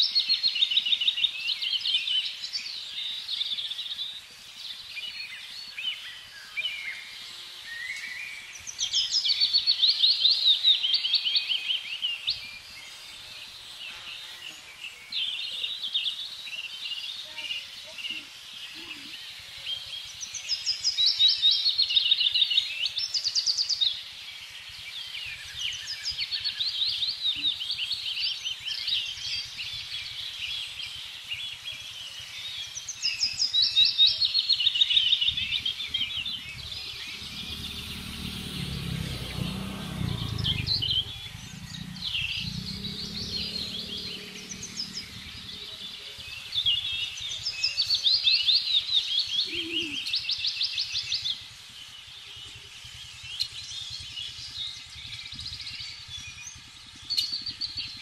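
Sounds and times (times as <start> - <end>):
outdoor background noise: 0.0 - 58.0
songbirds singing: 0.0 - 58.0
low rumble: 35.3 - 47.3.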